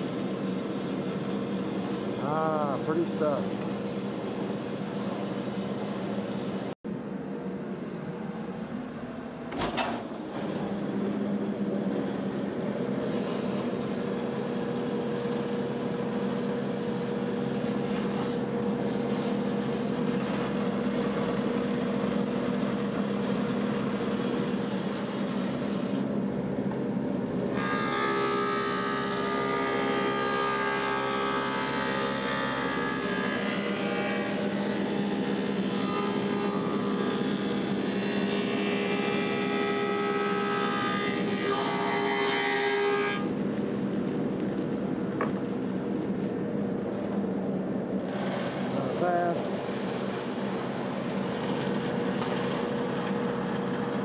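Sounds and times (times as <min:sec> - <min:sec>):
thickness planer humming: 0:00.0 - 0:54.0
planer cutting a board: 0:11.8 - 0:26.1, 0:27.5 - 0:43.4.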